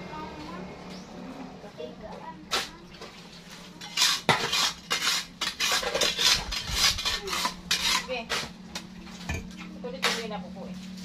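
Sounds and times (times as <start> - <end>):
shovel scraping sandy soil: 3.9 - 8.6.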